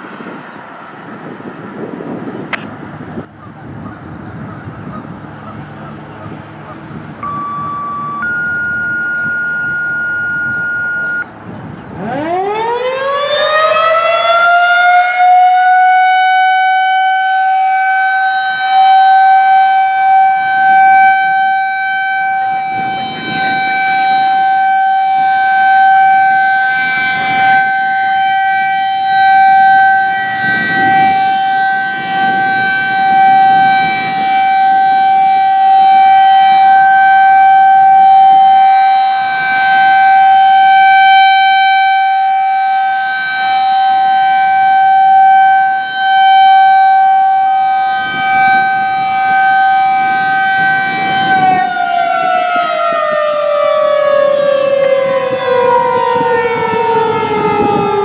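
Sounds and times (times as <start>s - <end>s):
rotating siren steady tone: 0.0s - 58.0s.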